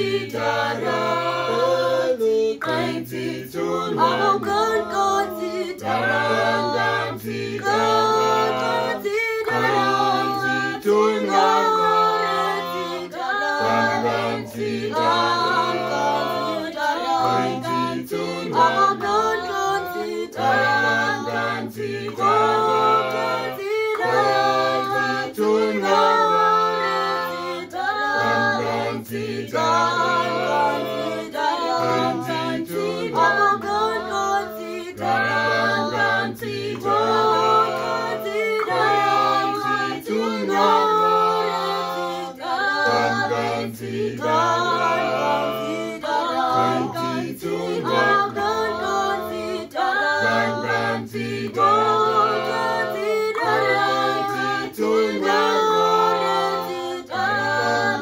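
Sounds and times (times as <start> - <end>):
choir singing unaccompanied: 0.0 - 58.0.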